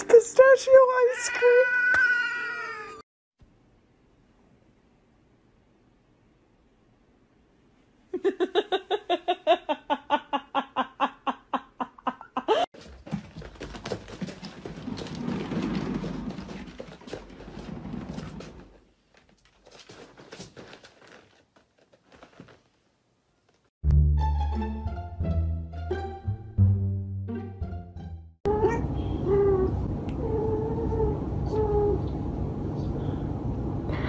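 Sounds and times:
cat exercise wheel rumbling: 12.8 - 22.7.

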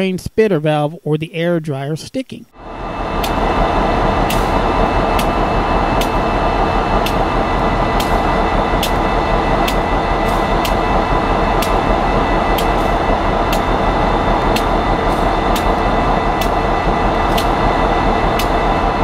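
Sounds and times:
diesel locomotive engine running: 2.6 - 19.0
short sharp tick: 9.6 - 10.8, 17.3 - 17.6, 18.4 - 18.6.

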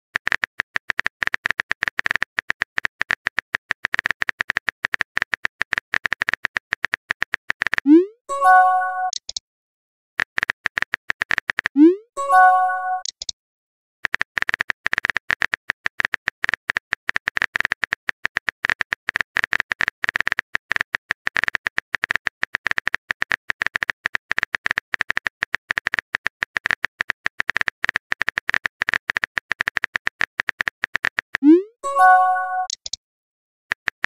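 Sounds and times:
keyboard typing clicks: 0.2 - 9.4, 10.2 - 13.4, 14.0 - 33.0
notification chime: 7.9 - 9.2, 12.2 - 13.1, 31.4 - 32.8.

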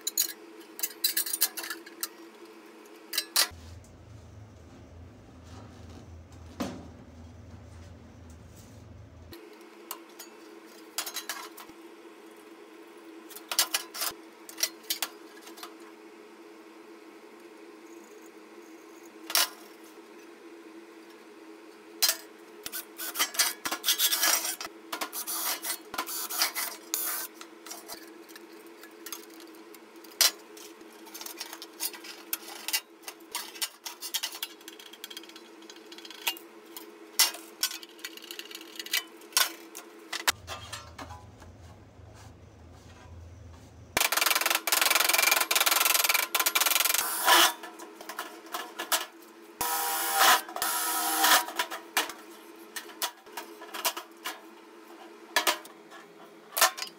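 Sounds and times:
power drill boring into metal: 49.6 - 51.4.

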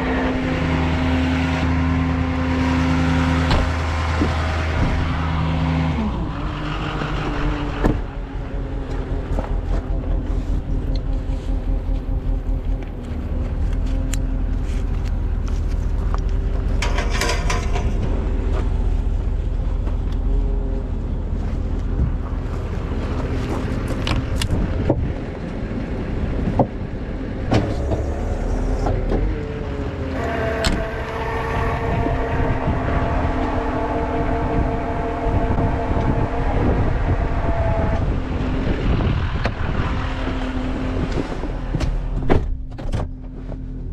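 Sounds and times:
metallic clanks and knocks: 16.6 - 18.7
diesel truck engine idling: 17.4 - 42.7
steady pitched hum: 30.2 - 41.0.

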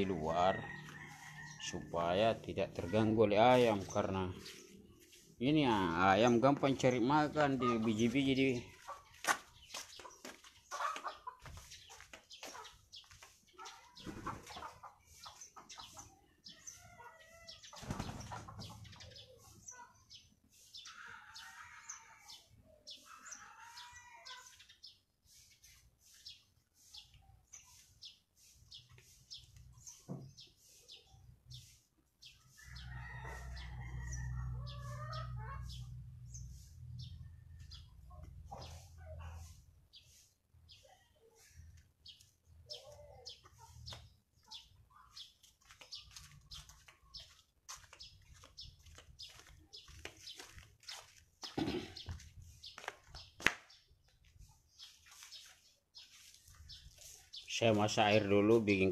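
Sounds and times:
chicken clucking: 7.5 - 17.4, 34.6 - 35.9.

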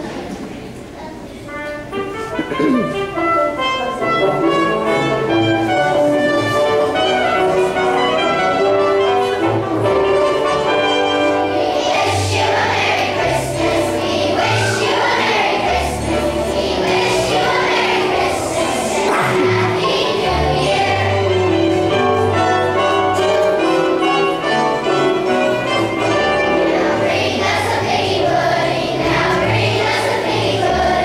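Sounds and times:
instrumental music: 1.5 - 31.0
children singing: 10.8 - 23.3, 25.9 - 31.0.

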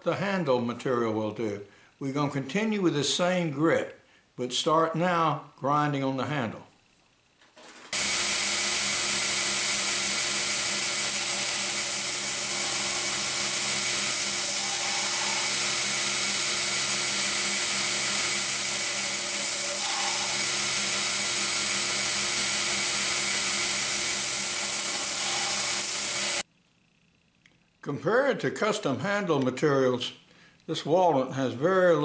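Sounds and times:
belt grinder motor hum: 8.0 - 26.4
abrasive hiss grinding wood: 9.3 - 26.4.

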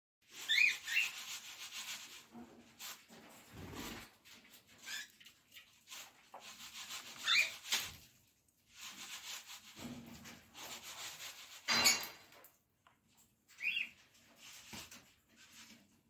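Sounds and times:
bird beak scraping a dish: 0.2 - 12.4, 13.5 - 16.0
cockatiel chirp: 0.4 - 1.2, 7.2 - 7.6, 13.6 - 13.9.

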